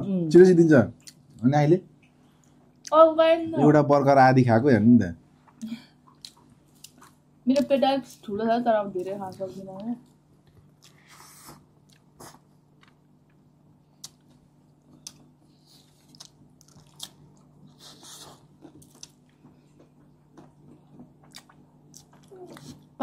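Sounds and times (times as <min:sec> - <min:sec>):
low steady hum: 0:00.0 - 0:23.0
chewing and biting food: 0:10.5 - 0:13.4, 0:14.0 - 0:23.0.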